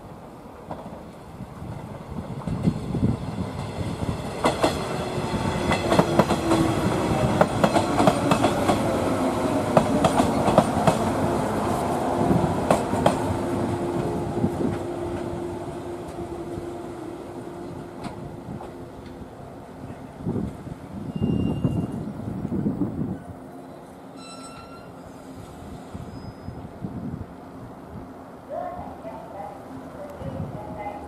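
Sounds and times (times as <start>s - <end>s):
train hum: 0.0s - 31.0s
train wheels clicking over rail joints: 4.4s - 8.9s, 9.7s - 11.1s.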